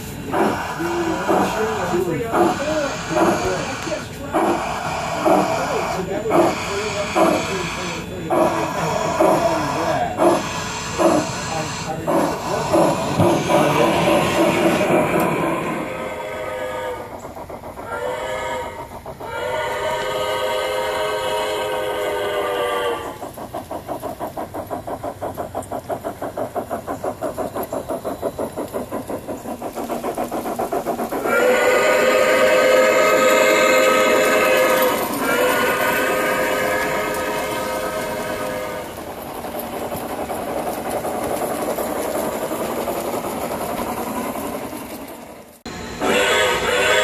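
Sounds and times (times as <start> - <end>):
steam chuffing: 0.0 - 47.0
steam whistle: 15.8 - 17.1, 17.9 - 23.2, 31.3 - 38.9, 46.0 - 47.0.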